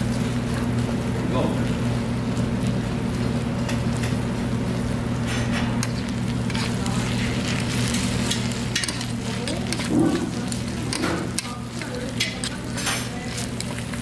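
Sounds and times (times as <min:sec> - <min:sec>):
rice sizzling: 0:00.0 - 0:14.0
steady low hum: 0:00.0 - 0:14.0
metal spoons scraping a pan: 0:05.8 - 0:13.8.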